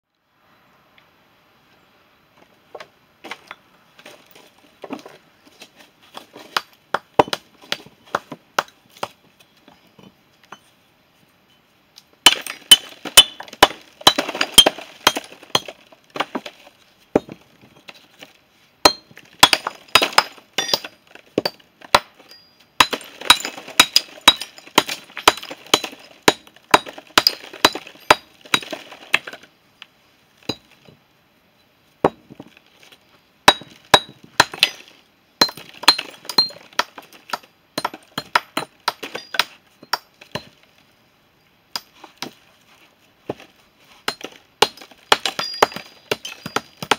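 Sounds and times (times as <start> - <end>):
hammer striking stone: 12.3 - 15.7, 18.8 - 22.1, 22.8 - 28.8, 35.4 - 40.5, 44.1 - 46.9.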